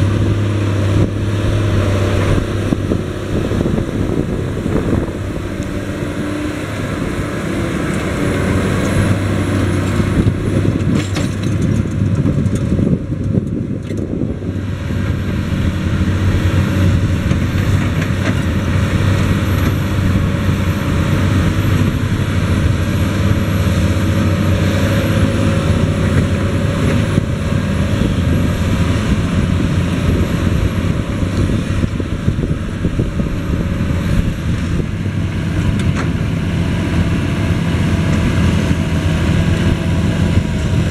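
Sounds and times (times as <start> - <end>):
tractor diesel engine under load: 0.0 - 40.9.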